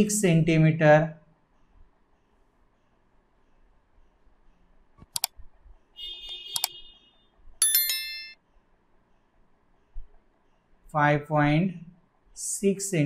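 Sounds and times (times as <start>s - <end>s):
mouse click: 5.0s - 5.4s
bell-like notification chime: 7.6s - 8.4s
short high tinkling tone: 7.6s - 8.4s.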